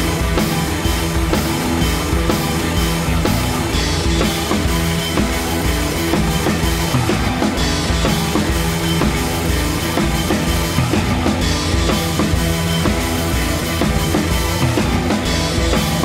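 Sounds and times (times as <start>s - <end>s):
rock music with drums and bass: 0.0s - 16.0s.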